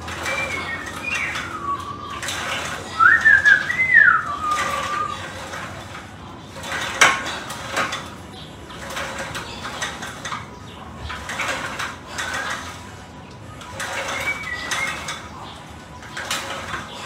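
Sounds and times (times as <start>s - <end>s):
metal clinks of weight stack: 0.0s - 3.7s, 4.4s - 17.0s
wavering high whistle: 3.0s - 5.2s.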